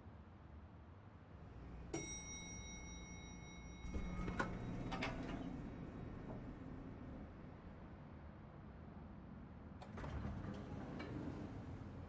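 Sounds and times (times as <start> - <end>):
low lobby hum: 1.3 - 12.0
lift arrival chime: 1.9 - 7.2
lift doors sliding open: 3.8 - 7.4, 9.8 - 12.0.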